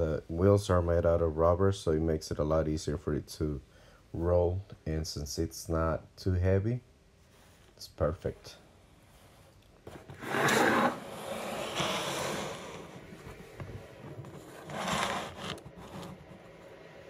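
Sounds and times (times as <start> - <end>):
cardboard box scraping on table: 9.8 - 16.5.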